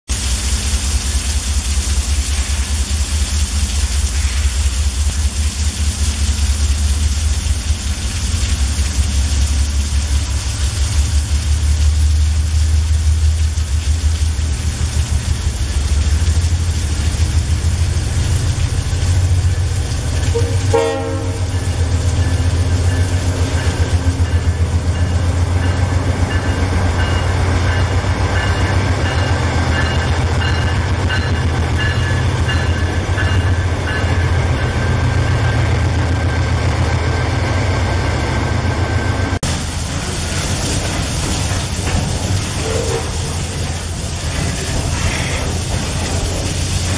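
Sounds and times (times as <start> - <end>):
heavy rain hissing: 0.1 - 26.2, 39.3 - 46.9
train horn blast: 20.2 - 21.9, 42.6 - 43.4.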